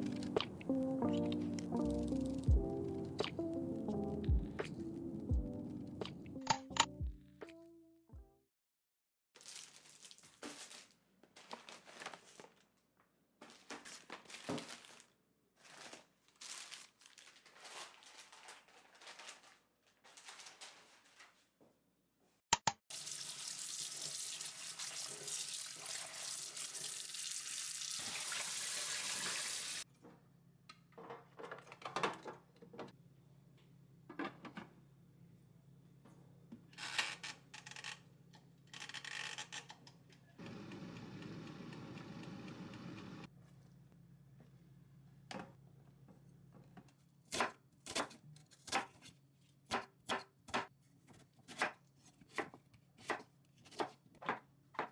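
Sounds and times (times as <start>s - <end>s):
plastic bag rustling: 9.4s - 12.8s, 13.4s - 21.6s
tap water running into sink: 22.9s - 29.8s.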